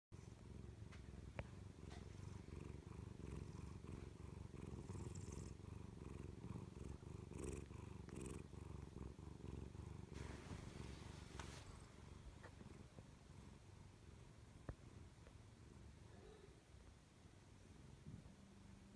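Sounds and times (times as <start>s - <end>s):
cat purring: 0.1s - 18.9s
rustling: 10.0s - 13.1s.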